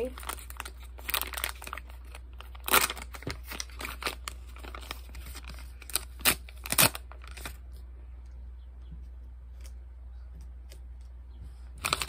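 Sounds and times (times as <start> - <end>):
package wrapping tearing and crinkling: 0.0 - 7.7, 11.8 - 12.0.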